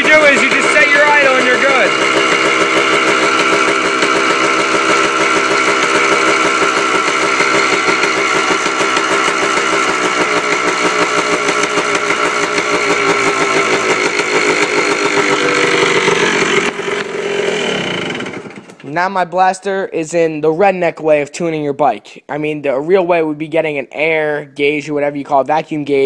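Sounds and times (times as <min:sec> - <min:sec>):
two-stroke engine idling: 0:00.0 - 0:18.8.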